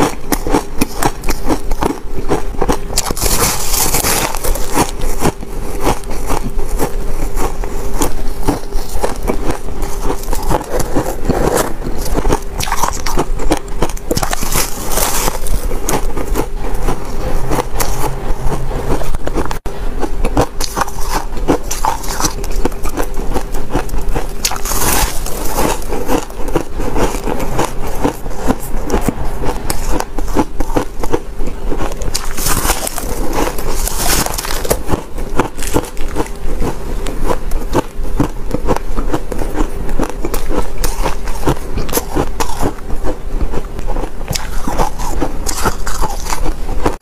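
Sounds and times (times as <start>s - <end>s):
chewing crunchy ice: 0.0s - 47.0s.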